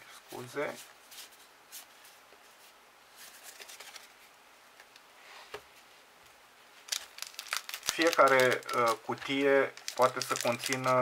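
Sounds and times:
trading cards being handled: 0:03.2 - 0:04.2, 0:06.8 - 0:11.0.

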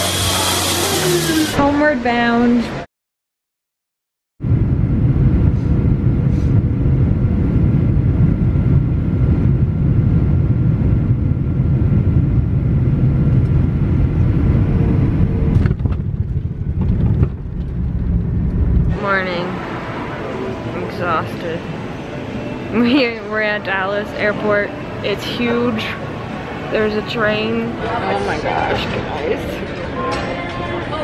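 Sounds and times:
jet engines and rushing air rumble: 0:04.4 - 0:27.5.

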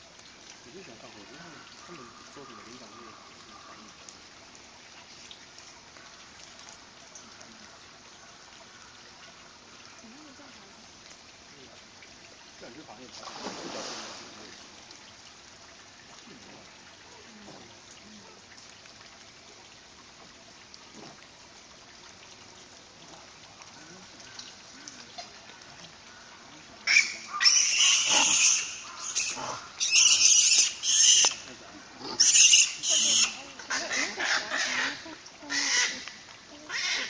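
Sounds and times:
monkeys calling harshly: 0:26.8 - 0:37.0.

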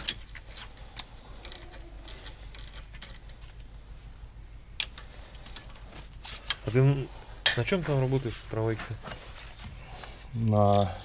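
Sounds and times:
metal parts and tools clicking: 0:00.0 - 0:03.6, 0:04.8 - 0:06.7
low steady hum: 0:00.0 - 0:11.0.

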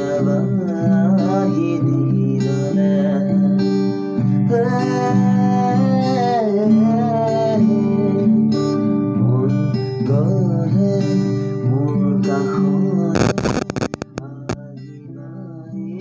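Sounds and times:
man singing: 0:00.0 - 0:03.6, 0:04.4 - 0:16.0
acoustic guitar strumming: 0:00.0 - 0:15.9.

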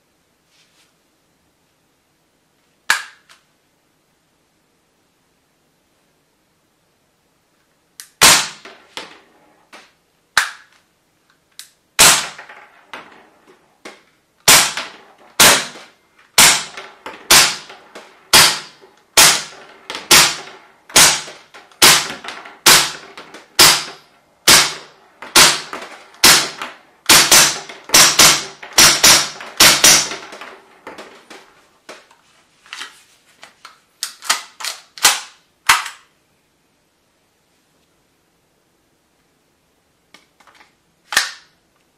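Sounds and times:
airsoft pistol shots: 0:08.1 - 0:09.2, 0:12.0 - 0:13.2, 0:14.4 - 0:31.4.

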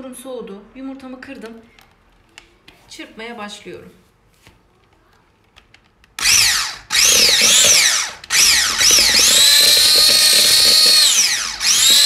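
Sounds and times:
electric hand mixer whining: 0:06.2 - 0:12.0.

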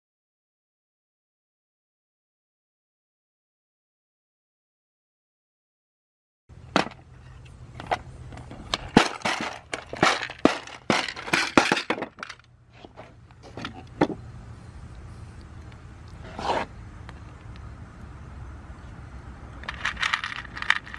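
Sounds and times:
plastic trays clacking: 0:07.8 - 0:14.2
screws and nails rattling: 0:08.7 - 0:12.5, 0:19.6 - 0:20.9.

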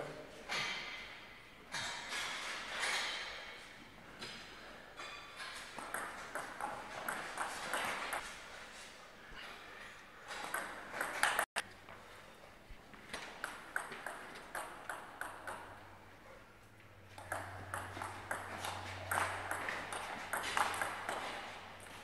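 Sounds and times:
ball bouncing: 0:05.6 - 0:08.2, 0:10.3 - 0:11.5, 0:13.0 - 0:15.9, 0:17.1 - 0:22.0
table tennis ball clicking: 0:13.4 - 0:15.8, 0:17.2 - 0:21.3.

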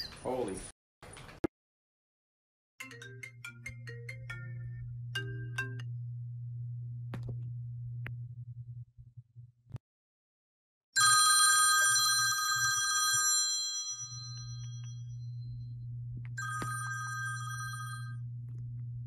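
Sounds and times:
low steady hum: 0:03.1 - 0:09.8, 0:14.2 - 0:19.0
phone alarm chime: 0:11.0 - 0:15.2, 0:16.4 - 0:18.2.

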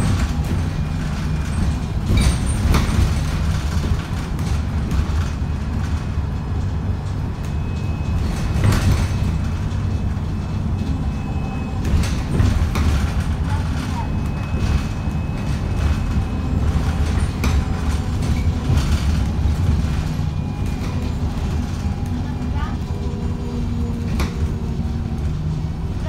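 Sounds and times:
bodywork knocks and rattles: 0:00.0 - 0:22.2
bus engine drone: 0:00.0 - 0:26.0.

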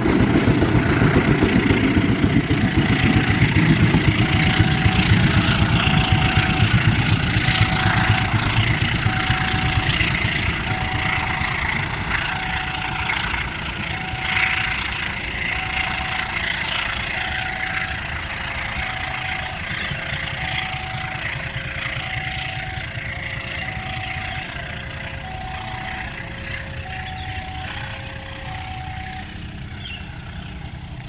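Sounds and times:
train rumble: 0:00.0 - 0:31.0
two-tone crossing alarm chime: 0:02.6 - 0:30.1.

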